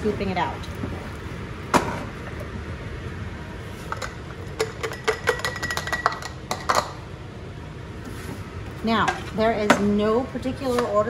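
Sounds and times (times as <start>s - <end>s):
utensil clinking against glass jars: 3.9s - 6.9s.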